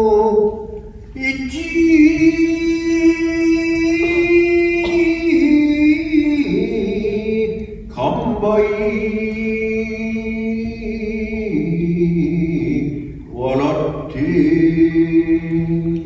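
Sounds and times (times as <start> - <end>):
person chanting long notes: 11.6 - 16.0.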